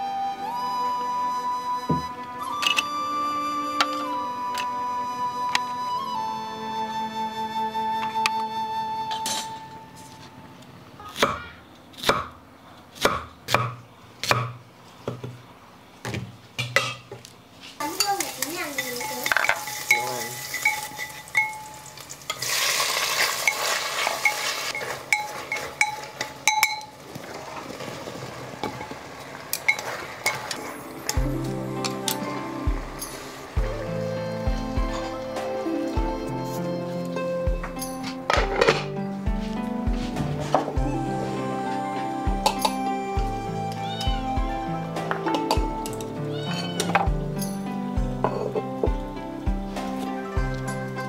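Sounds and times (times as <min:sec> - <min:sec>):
food frying in a pan: 0:17.8 - 0:31.2
metal utensil clinking: 0:17.9 - 0:27.0, 0:29.6 - 0:31.2
spatula scraping a pan: 0:22.4 - 0:26.3.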